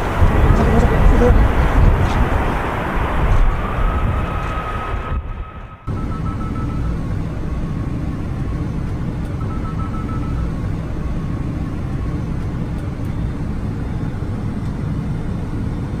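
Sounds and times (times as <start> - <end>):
cockpit air rumble: 0.0 - 16.0
high beeping tone: 5.4 - 8.1, 9.3 - 11.6.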